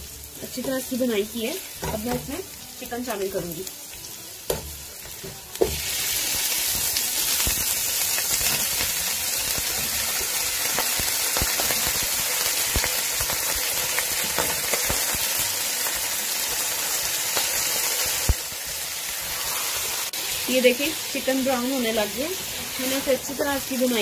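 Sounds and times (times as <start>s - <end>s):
chicken sizzling in hot oil: 0.0s - 24.0s
spatula knocking on pan: 4.5s - 5.8s.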